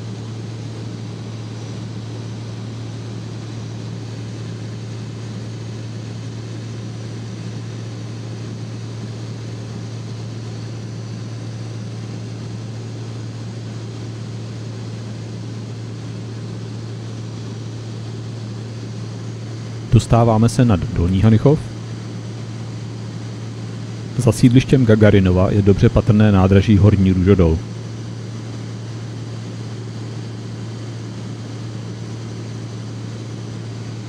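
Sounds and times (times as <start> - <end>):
propeller aircraft engine droning: 0.0 - 34.0.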